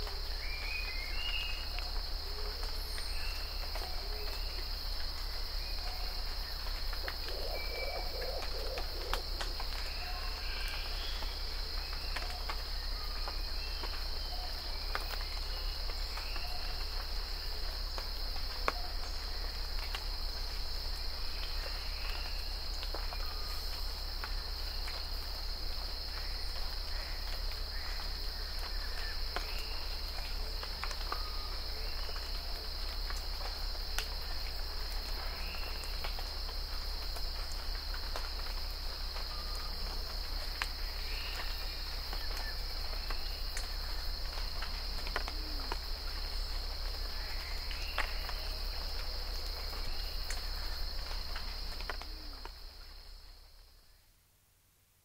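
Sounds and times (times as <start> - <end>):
high insect drone: 0.0 - 54.0
rain dripping on leaves: 0.0 - 55.0
bird calls: 7.0 - 9.3.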